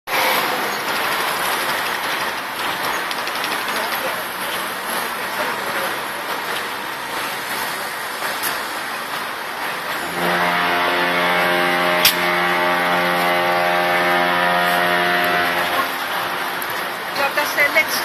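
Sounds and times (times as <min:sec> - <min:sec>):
harbour noise: 0:00.1 - 0:18.0
wind: 0:00.1 - 0:18.0
ship's horn blast: 0:10.0 - 0:18.0.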